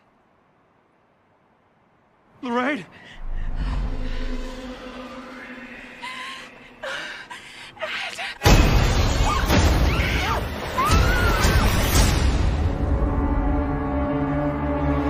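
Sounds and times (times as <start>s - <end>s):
scary music with screeching tones: 8.4s - 15.0s.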